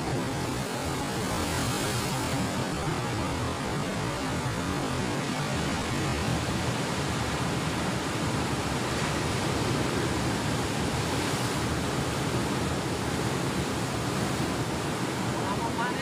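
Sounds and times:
waves breaking on rocky shore: 0.0 - 16.0.

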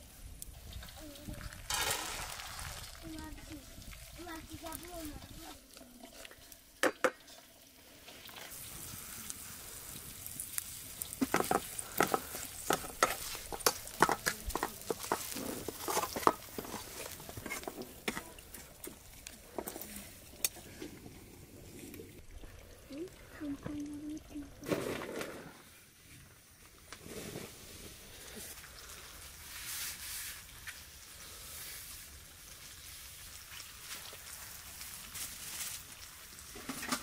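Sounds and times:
berries sizzling in oil: 0.0 - 37.0
wooden spoon scraping a pan: 11.1 - 20.9.

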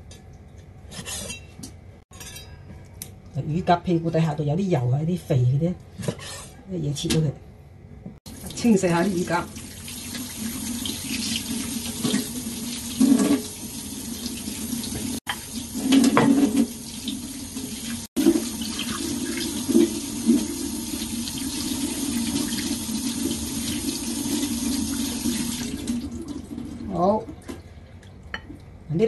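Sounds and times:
tap water running into sink: 8.3 - 26.8.

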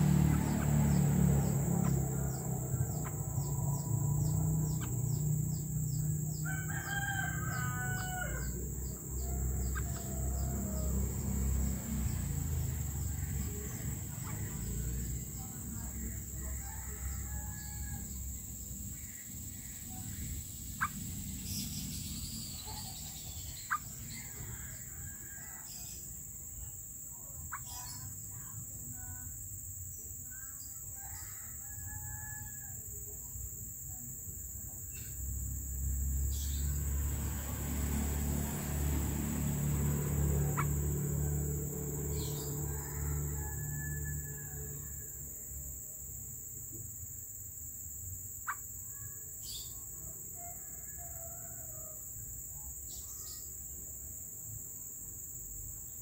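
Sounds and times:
rooster crowing: 0.0 - 5.2, 6.1 - 12.0, 16.3 - 18.3, 24.1 - 25.9, 30.9 - 32.8, 37.5 - 45.4, 50.1 - 52.2
low rumble: 0.0 - 6.4
birds chirping: 0.0 - 26.2, 27.2 - 28.4, 34.8 - 43.5.

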